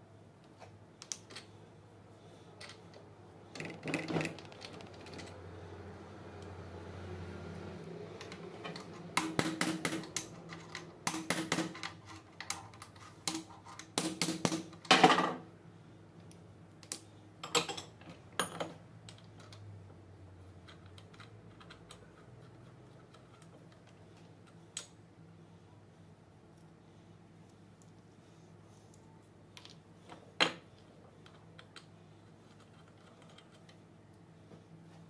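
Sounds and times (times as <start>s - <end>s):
metallic clicks and taps of tools: 1.0s - 1.5s.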